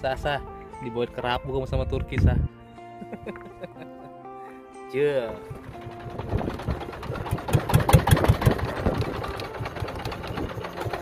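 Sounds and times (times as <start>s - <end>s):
boat engine thudding: 5.3s - 11.0s.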